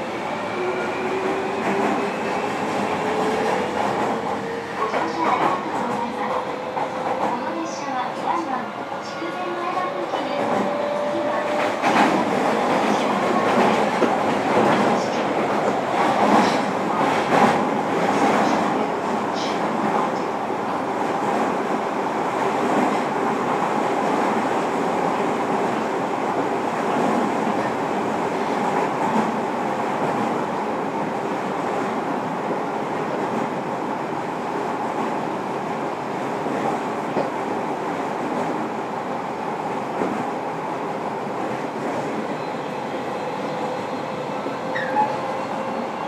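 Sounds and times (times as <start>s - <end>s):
rail clicks: 1.2s - 20.3s.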